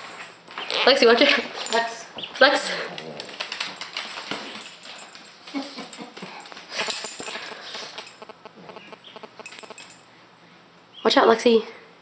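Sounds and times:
dog claws clicking on hardwood floor: 0:02.7 - 0:08.3.

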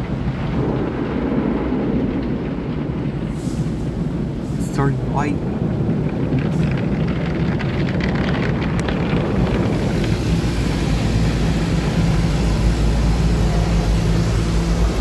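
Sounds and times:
water spray drumming on car: 0:03.3 - 0:15.0
low machine hum: 0:04.6 - 0:15.0.

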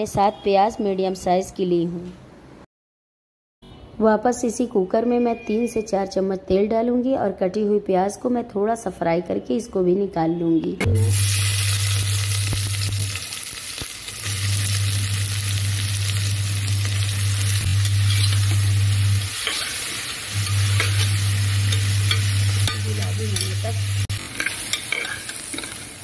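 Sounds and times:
onions sizzling in hot oil: 0:11.0 - 0:26.0
low hum: 0:14.3 - 0:19.3
steel spoon scraping pot: 0:18.0 - 0:18.6, 0:19.3 - 0:23.6, 0:24.2 - 0:26.0.

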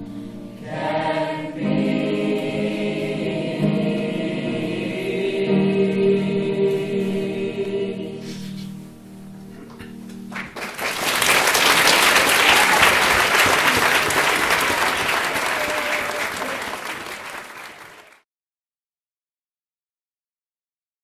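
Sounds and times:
choir holding chord: 0:00.0 - 0:09.0
audience applauding: 0:10.2 - 0:18.2.

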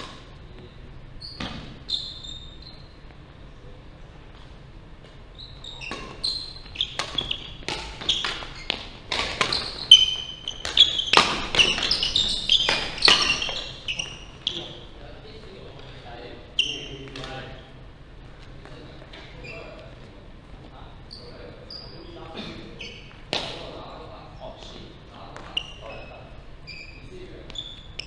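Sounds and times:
sneaker squeaks: 0:00.0 - 0:03.4, 0:04.3 - 0:15.6, 0:16.4 - 0:17.8, 0:18.5 - 0:20.1, 0:20.7 - 0:28.0
racket striking shuttlecock: 0:06.8 - 0:13.6.

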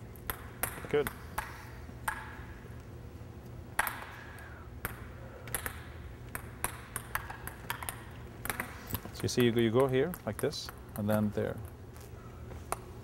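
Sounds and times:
low steady hum: 0:00.0 - 0:13.0
table tennis balls ticking: 0:00.2 - 0:02.5, 0:03.8 - 0:11.8.

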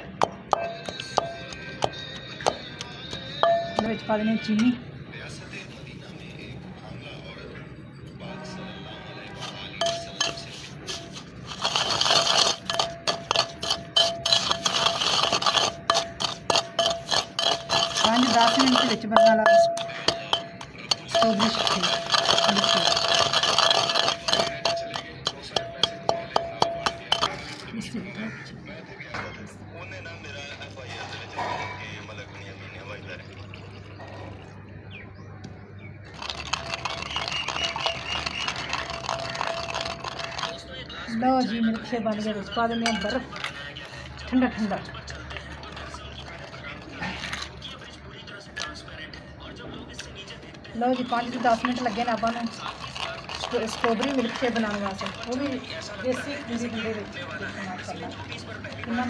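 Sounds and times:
pestle grinding in a mortar: 0:00.0 - 0:04.7, 0:09.3 - 0:27.7, 0:36.0 - 0:40.9, 0:41.7 - 0:48.6, 0:50.4 - 0:59.0
pestle knocking: 0:00.2 - 0:04.1, 0:09.8 - 0:27.6.

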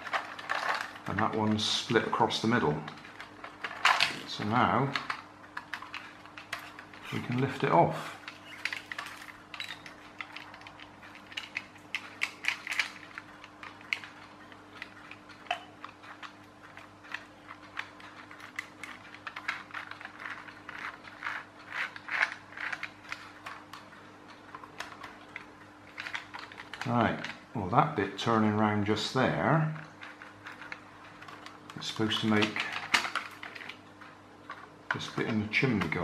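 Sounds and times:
toy gears clicking and rattling: 0:00.0 - 0:27.5, 0:28.1 - 0:36.0
plastic parts knocking: 0:02.8 - 0:23.9, 0:29.8 - 0:33.8.

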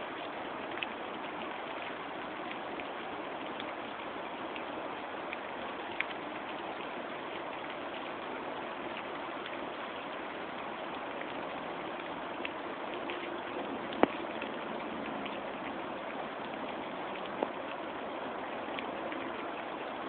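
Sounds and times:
outdoor background hiss: 0:00.0 - 0:20.0
faint ticks: 0:05.3 - 0:08.3, 0:08.9 - 0:15.5, 0:17.2 - 0:17.8.

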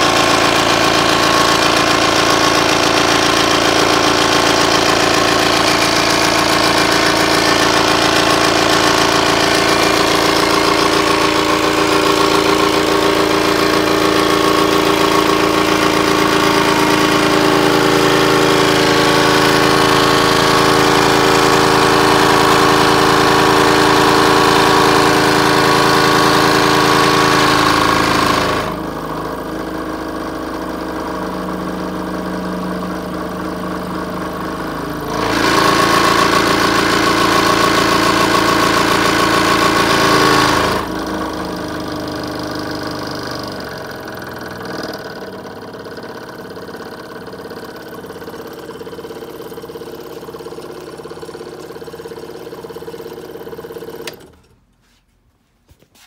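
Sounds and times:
scroll saw running: 0:00.0 - 0:29.2, 0:34.2 - 0:54.4.

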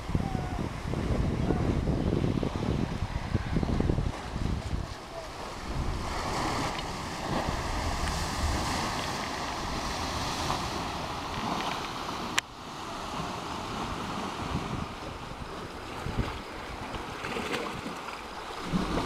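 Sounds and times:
sea surf washing on rocks: 0:00.0 - 0:19.0
wind rumbling on microphone: 0:00.0 - 0:19.0.

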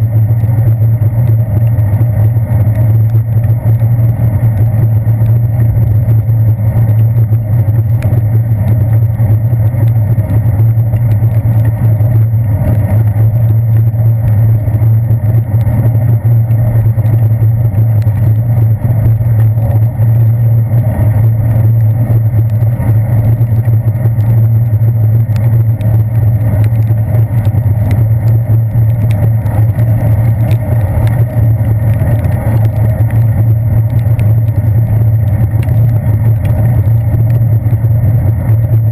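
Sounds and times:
bicycle rolling on wet pavement: 0:00.0 - 0:38.9
wind noise: 0:00.0 - 0:38.9.

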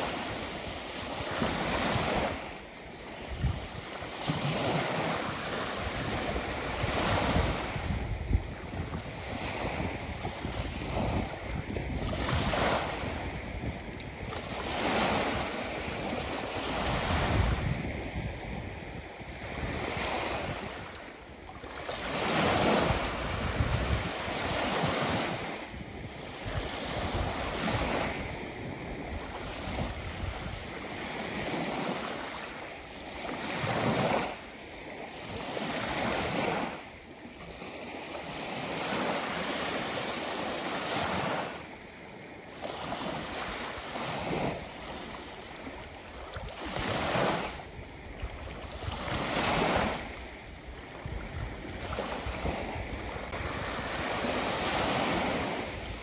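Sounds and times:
sea waves breaking: 0:00.0 - 0:56.0.

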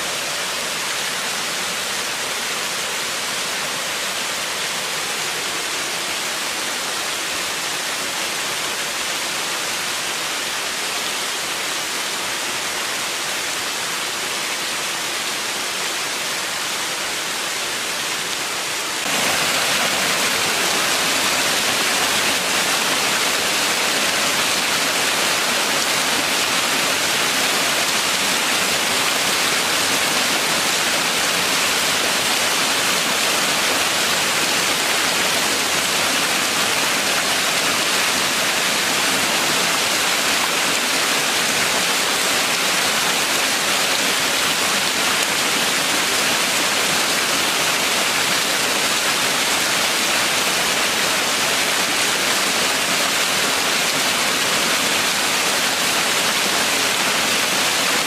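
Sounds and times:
waterfall splashing into pool: 0:19.0 - 0:58.0.

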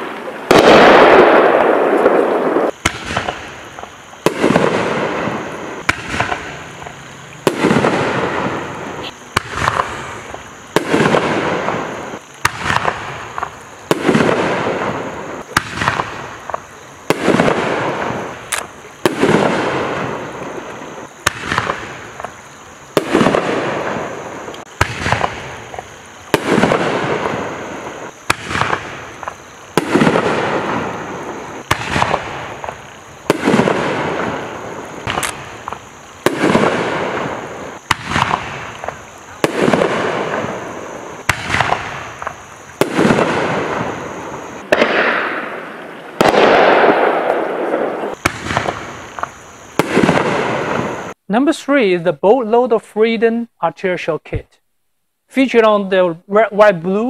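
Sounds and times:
firework shells bursting: 0:00.0 - 0:51.2
shells firing from launch tube: 0:44.6 - 0:45.4, 0:46.2 - 0:48.9.

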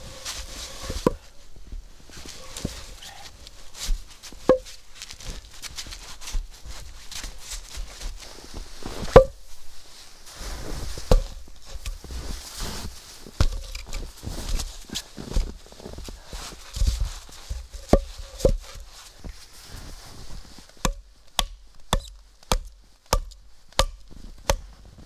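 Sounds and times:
boots crunching in snow: 0:00.1 - 0:20.8
wooden logs knocking together: 0:04.5 - 0:04.8, 0:09.2 - 0:09.4, 0:17.7 - 0:18.8, 0:20.8 - 0:24.7.

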